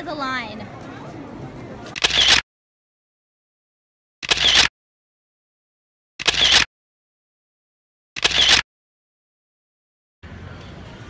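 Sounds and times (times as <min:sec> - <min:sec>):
camera shutter click: 0:02.0 - 0:02.4, 0:04.2 - 0:04.7, 0:06.2 - 0:06.7, 0:08.2 - 0:08.6.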